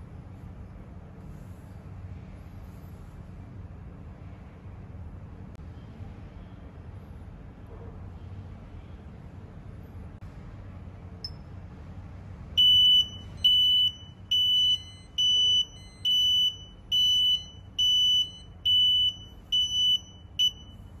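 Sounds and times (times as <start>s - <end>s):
high alarm beeps: 12.6s - 20.9s.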